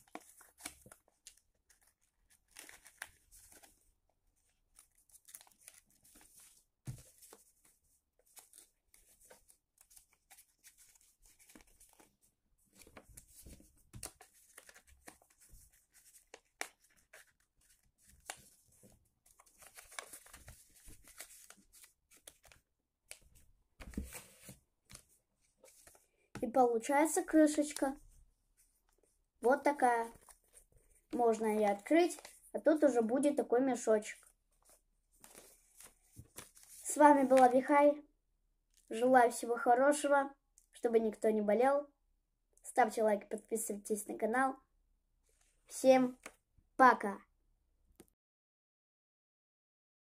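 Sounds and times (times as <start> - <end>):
paper rustling and crinkling: 0.0 - 3.8, 4.4 - 26.2, 30.0 - 32.5, 34.2 - 37.5.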